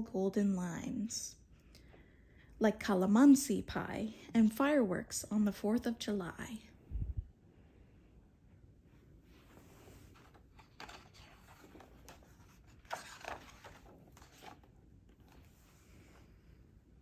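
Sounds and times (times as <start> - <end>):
book pages turning: 9.8 - 15.8.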